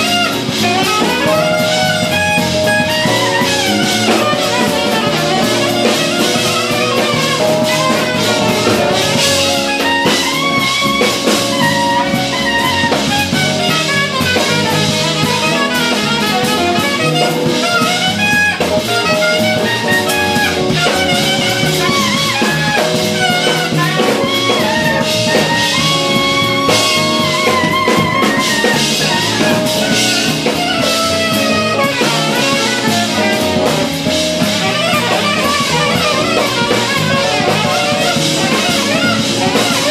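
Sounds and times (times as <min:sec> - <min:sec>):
drum kit: 0:00.0 - 0:39.9
electric bass: 0:00.0 - 0:39.9
electric guitar: 0:00.0 - 0:39.9
saxophone lead lines: 0:00.0 - 0:39.9.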